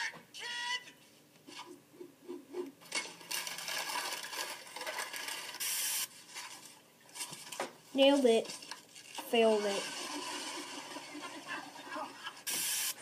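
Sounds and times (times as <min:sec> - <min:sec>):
noisy clatter and scraping: 0:02.8 - 0:11.4
short hiss: 0:12.5 - 0:13.0.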